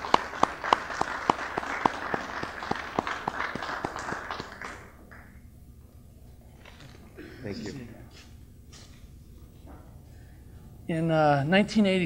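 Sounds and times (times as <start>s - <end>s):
audience applause: 0.0s - 5.4s
sharp claps close to microphone: 0.0s - 5.4s.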